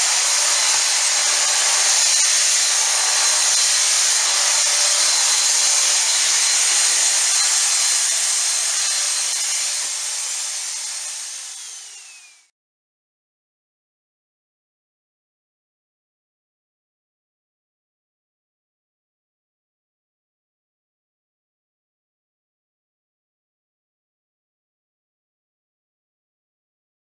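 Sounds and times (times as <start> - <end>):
stick vacuum cleaner running: 0.0 - 12.5.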